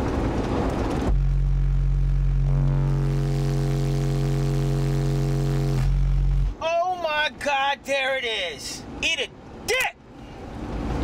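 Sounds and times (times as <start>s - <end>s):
broad rumbling noise: 0.0s - 6.6s
subwoofer deep hum: 0.8s - 6.6s.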